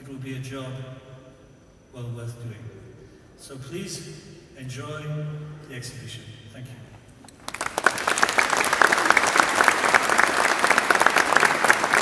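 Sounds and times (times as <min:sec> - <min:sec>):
audience applauding: 0:07.4 - 0:12.0.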